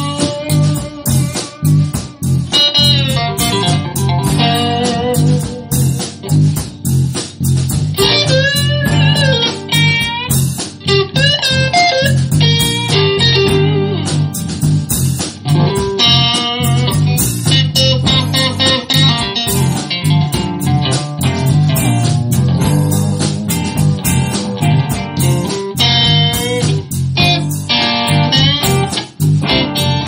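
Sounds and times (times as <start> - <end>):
lead electric guitar solo: 0.0 - 6.4, 8.0 - 14.5, 15.4 - 30.0
drums: 0.0 - 30.0
repeating bass line: 0.0 - 30.0.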